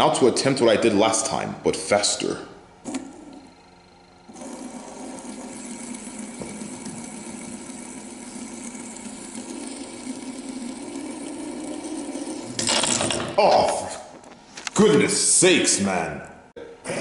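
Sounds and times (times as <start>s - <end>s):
fidget spinner whirring rattle: 2.8s - 13.3s.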